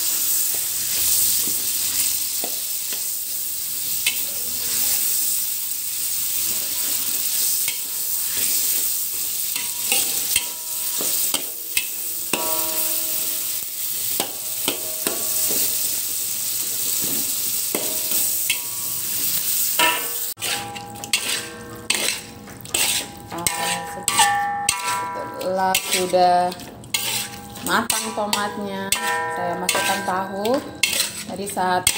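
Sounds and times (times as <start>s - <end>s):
food sizzling in hot oil: 0.0s - 31.9s
metal spatula scraping a wok: 6.3s - 16.1s, 16.8s - 31.9s.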